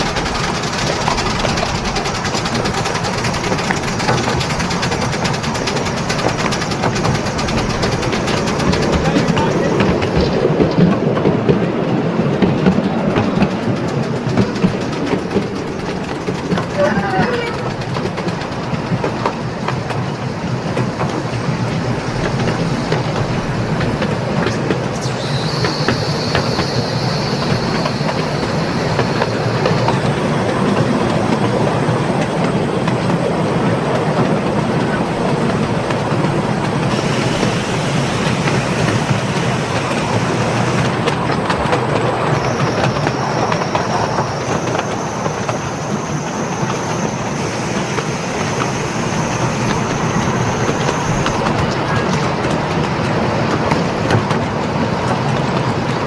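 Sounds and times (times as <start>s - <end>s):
train wheels rumbling on rails: 0.0s - 56.0s
high wheel squeal: 21.6s - 34.0s, 34.9s - 56.0s.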